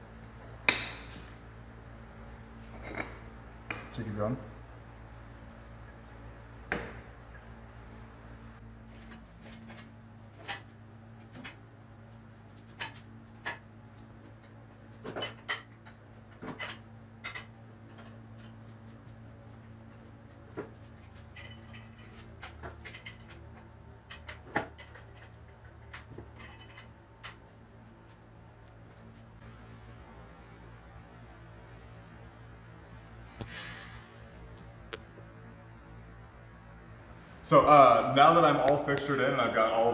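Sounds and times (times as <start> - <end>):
low shop hum: 0.0 - 39.9
metal clanks and clicks: 21.0 - 27.5.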